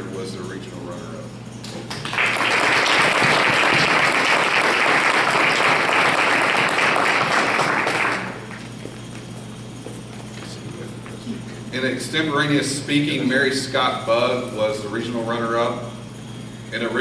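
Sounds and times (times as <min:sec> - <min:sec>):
audience applauding: 0:01.9 - 0:08.8.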